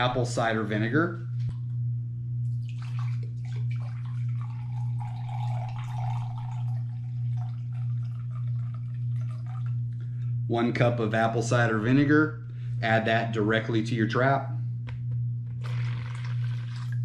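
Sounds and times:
steady low hum: 0:00.0 - 0:17.0
liquid pouring into glass cup: 0:02.6 - 0:09.8, 0:15.6 - 0:17.0.

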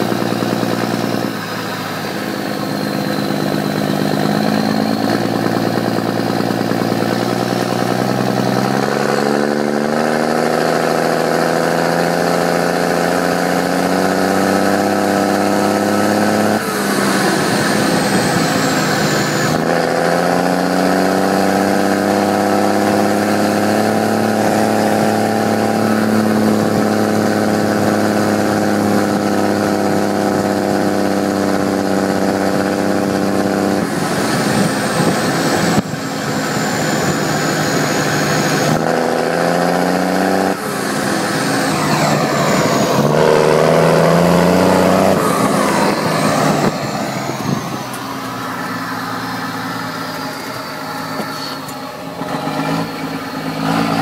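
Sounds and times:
turbo whistle: 0:00.0 - 0:10.1
tractor diesel engine running: 0:00.0 - 0:54.0.

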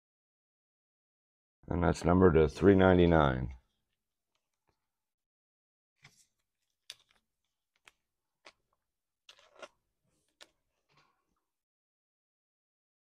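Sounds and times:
trading cards clicking and rustling: 0:06.0 - 0:08.6.

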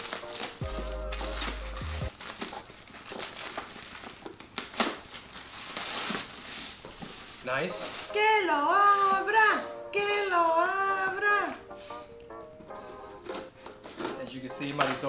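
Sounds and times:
plastic bag tearing and crinkling: 0:00.0 - 0:08.2
music with deep bass note: 0:00.6 - 0:02.1.

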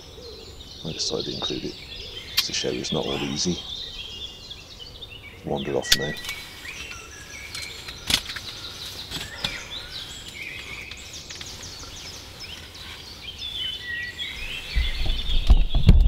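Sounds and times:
birds chirping and trilling: 0:00.0 - 0:16.0
sharp click: 0:05.9 - 0:06.4.

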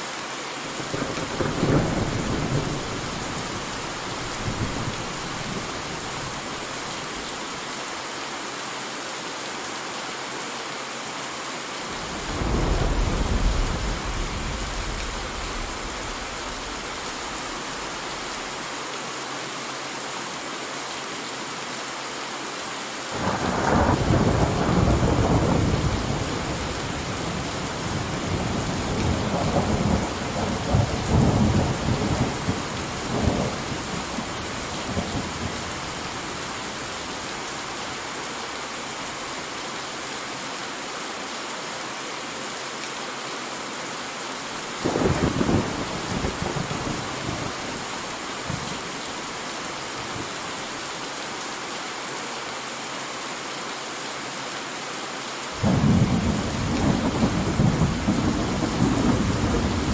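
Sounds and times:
steady rain: 0:00.0 - 0:59.9
thunder rumbling: 0:00.8 - 0:06.8, 0:12.2 - 0:18.0, 0:23.2 - 0:36.4, 0:44.8 - 0:49.4, 0:55.6 - 0:59.9.

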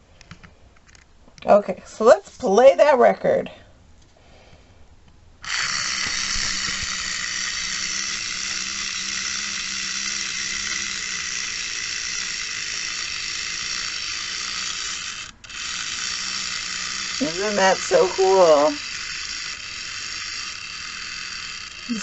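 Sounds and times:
clockwork motor whirring: 0:05.4 - 0:22.0.

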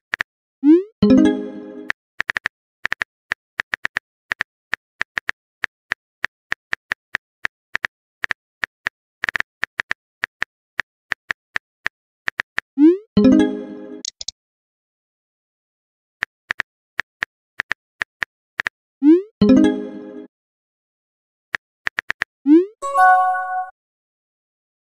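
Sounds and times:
phone keyboard typing clicks: 0:14.0 - 0:14.3
message sent chime: 0:22.8 - 0:23.8.

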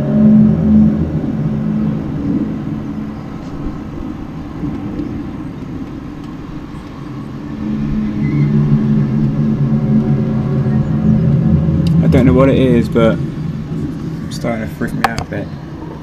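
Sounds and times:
low droning hum: 0:00.0 - 0:16.0.

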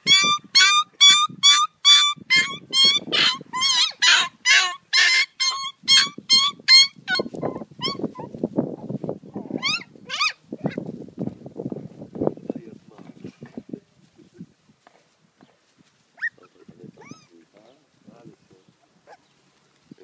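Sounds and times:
puppy yelping: 0:00.0 - 0:08.3, 0:09.6 - 0:10.8, 0:16.2 - 0:17.4, 0:19.0 - 0:19.3.

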